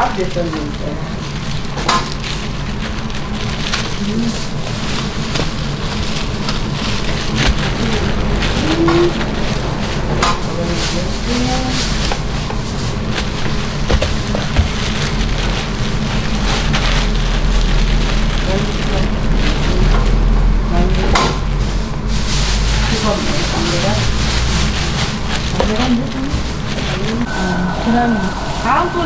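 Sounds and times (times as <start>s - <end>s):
faint voices: 25.4s - 29.0s
steady hissing: 26.6s - 29.0s.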